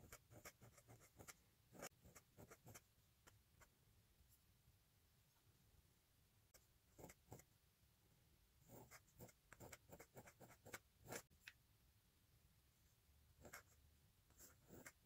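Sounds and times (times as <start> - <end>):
pen nib scratching on paper: 0.0 - 2.9, 6.5 - 7.5, 8.7 - 11.3, 13.4 - 15.0.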